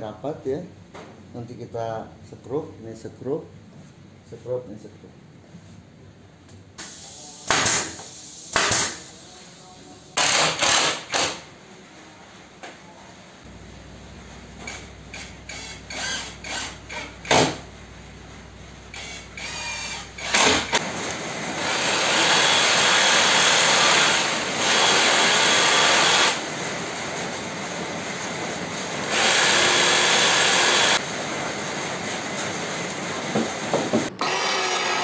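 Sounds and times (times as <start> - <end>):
cordless drill driving screws: 15.2 - 17.1, 18.9 - 20.8, 21.7 - 26.4, 29.1 - 31.0, 34.2 - 35.0
power saw cutting wood: 19.0 - 20.8, 21.6 - 26.4, 29.1 - 31.0, 34.2 - 35.0.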